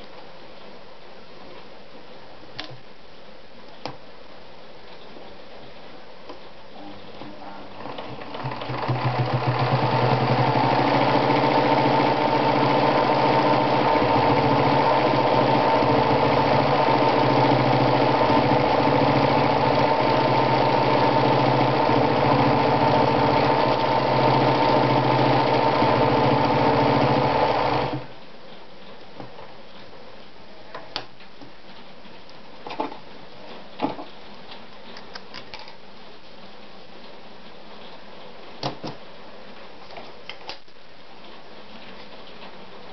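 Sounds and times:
sewing machine running: 0:07.7 - 0:28.1.

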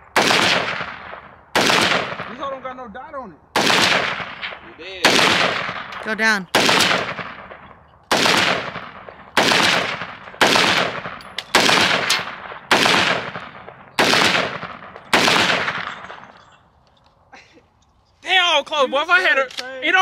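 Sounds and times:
rifle shots with echo: 0:00.0 - 0:02.7, 0:03.5 - 0:16.4.

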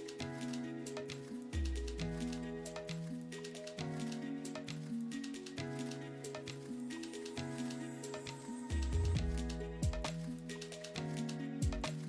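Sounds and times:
light ticking beat: 0:00.0 - 0:12.0.

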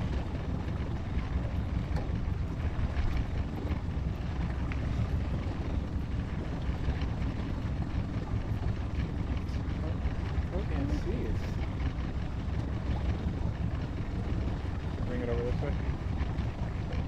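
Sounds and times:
outboard motor rumble: 0:00.0 - 0:17.0
water moving along hull: 0:00.0 - 0:17.0
wind on microphone: 0:00.0 - 0:17.0.

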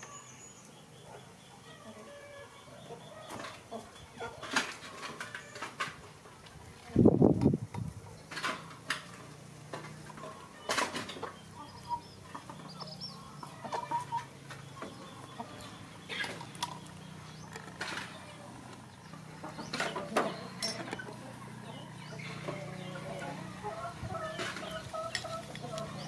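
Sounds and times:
rustle: 0:03.2 - 0:12.8.

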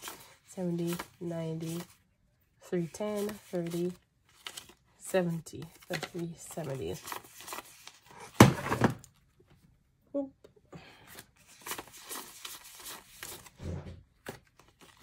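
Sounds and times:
plastic banknotes rustling: 0:00.0 - 0:02.1, 0:02.8 - 0:08.2, 0:11.1 - 0:13.6, 0:14.2 - 0:15.0.

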